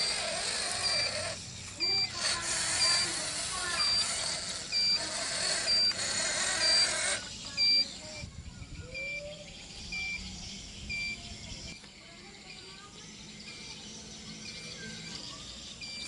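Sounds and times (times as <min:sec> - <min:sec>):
toy truck drive hiss: 0:00.0 - 0:08.1
reversing beeper beeps: 0:00.1 - 0:11.7, 0:14.3 - 0:16.0.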